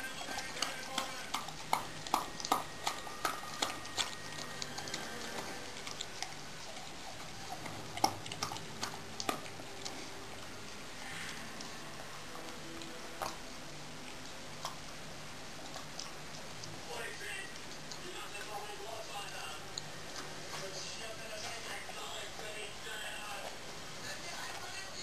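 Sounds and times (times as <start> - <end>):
dog lapping from a bowl: 0.0 - 10.0.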